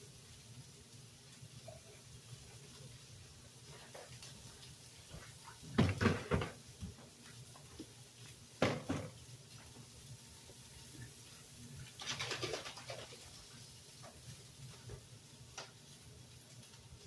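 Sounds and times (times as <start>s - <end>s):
cupboard door clattering: 5.8s - 6.6s.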